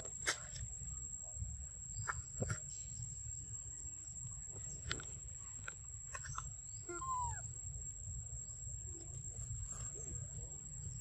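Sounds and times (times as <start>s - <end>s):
steady high-pitched whine: 0.0s - 11.0s
short arching animal call: 6.9s - 7.4s.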